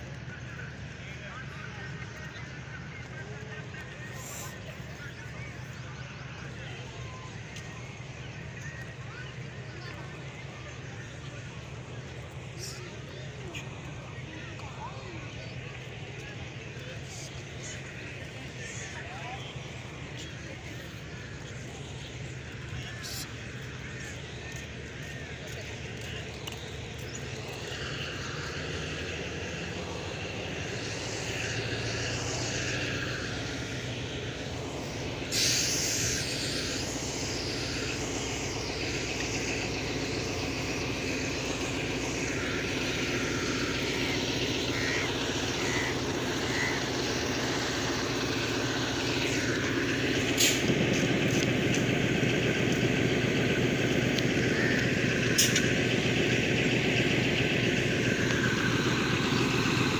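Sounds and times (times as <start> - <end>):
locomotive engine running: 0.0 - 59.9
sharp clicks: 24.5 - 29.2, 49.6 - 59.9
air hiss: 27.7 - 52.0.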